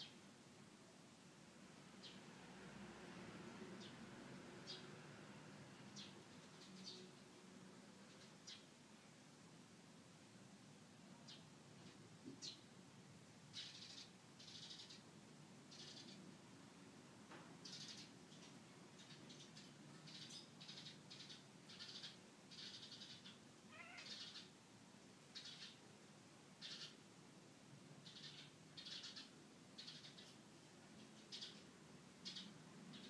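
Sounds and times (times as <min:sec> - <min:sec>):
cat chirping meows: 0:21.7 - 0:24.5.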